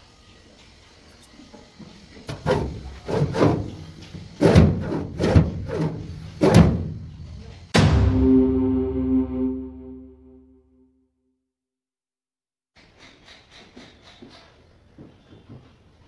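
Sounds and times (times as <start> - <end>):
steel drawer sliding open and shut: 2.3 - 6.9.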